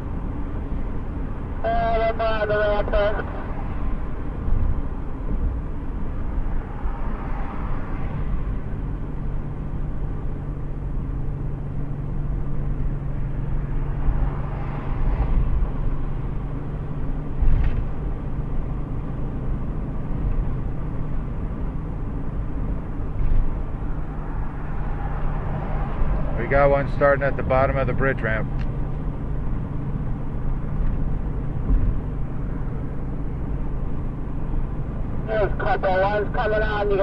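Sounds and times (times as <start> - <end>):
car road and engine noise: 0.0 - 37.0.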